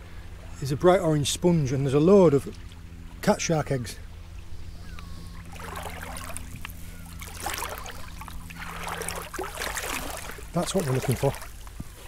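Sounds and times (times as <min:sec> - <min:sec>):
steady low hum: 0:00.0 - 0:12.0
seawater swishing around boots: 0:05.5 - 0:12.0.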